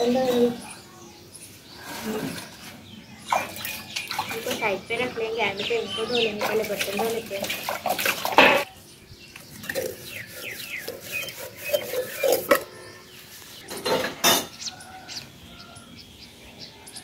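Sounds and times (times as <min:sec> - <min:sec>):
metal pots clinking and scraping: 0:06.2 - 0:08.8, 0:09.4 - 0:14.6.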